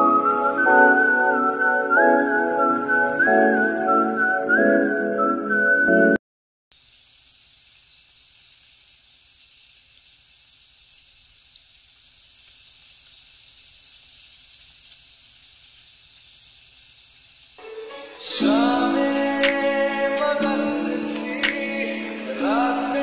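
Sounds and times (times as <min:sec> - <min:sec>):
high-pitched insect buzzing: 0:06.8 - 0:19.0.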